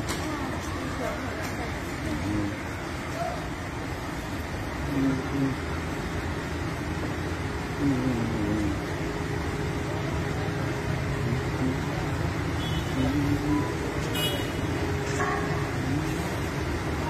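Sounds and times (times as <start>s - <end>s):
faint voices: 0.0s - 6.3s, 7.4s - 17.0s
road traffic rumble: 0.0s - 17.0s.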